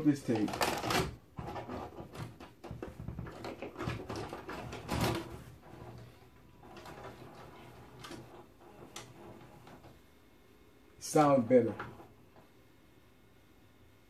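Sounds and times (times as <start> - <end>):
tape player mechanism clicks and clunks: 0.2 - 5.9.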